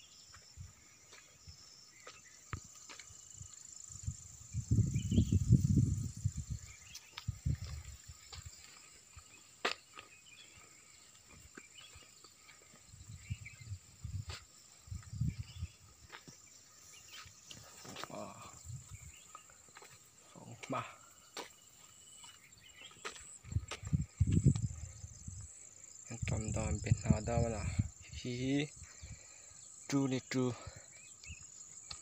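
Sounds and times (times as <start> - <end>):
high insect drone: 0.0 - 32.0
wind gusting on microphone: 3.9 - 8.3, 12.9 - 15.9, 18.4 - 19.2, 23.4 - 25.5, 26.1 - 29.2.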